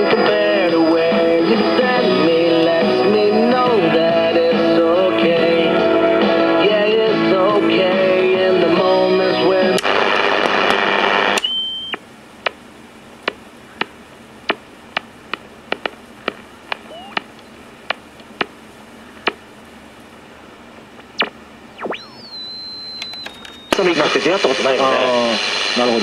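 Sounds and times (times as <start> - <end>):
radio static hiss: 8.8 - 26.0
static crackles and clicks: 9.6 - 26.0
radio broadcast: 9.8 - 11.4, 16.2 - 18.1, 21.2 - 26.0
radio tuning whistle: 9.8 - 12.0, 16.8 - 17.3, 21.2 - 26.0.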